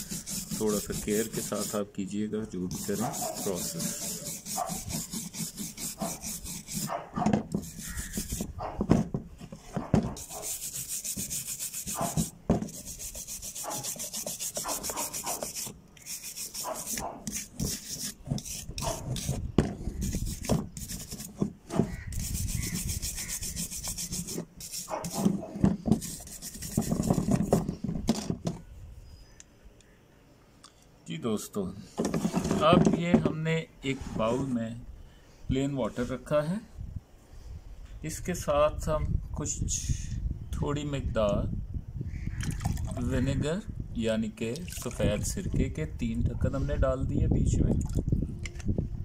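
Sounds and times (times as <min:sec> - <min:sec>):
wire brush scrubbing metal: 0:00.0 - 0:01.8, 0:02.7 - 0:08.5, 0:10.2 - 0:19.4, 0:20.0 - 0:27.5.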